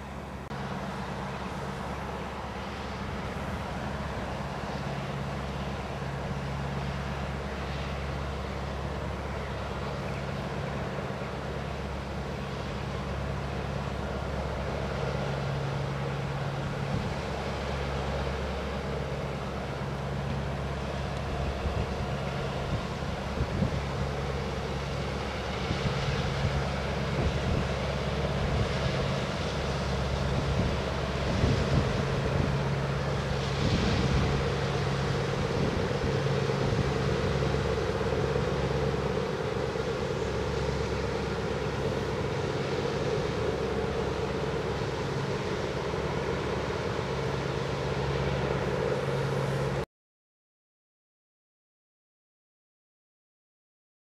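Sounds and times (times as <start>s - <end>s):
distant machinery drone: 0.0s - 49.8s
wind noise on microphone: 21.3s - 42.2s.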